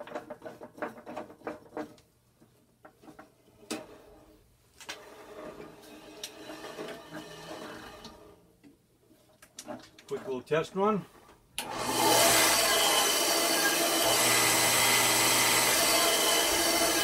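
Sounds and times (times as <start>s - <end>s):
bandsaw wheel whirring: 11.6s - 17.0s.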